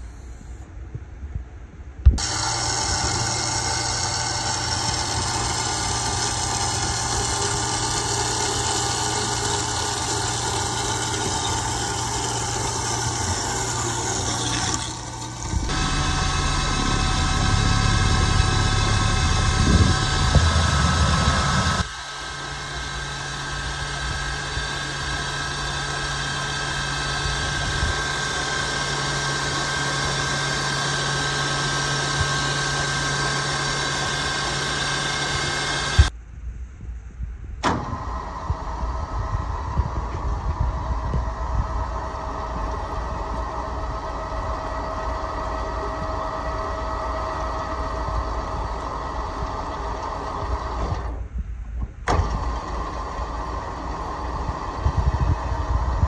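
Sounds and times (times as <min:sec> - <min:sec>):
machine cutting metal bar: 0:02.2 - 0:36.1
metal lathe turning: 0:02.2 - 0:36.1, 0:41.7 - 0:51.2.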